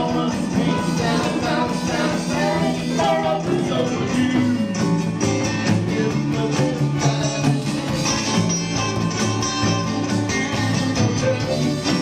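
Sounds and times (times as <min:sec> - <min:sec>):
man singing: 0:00.0 - 0:08.1
bass guitar: 0:00.0 - 0:12.0
electric guitar: 0:00.0 - 0:12.0.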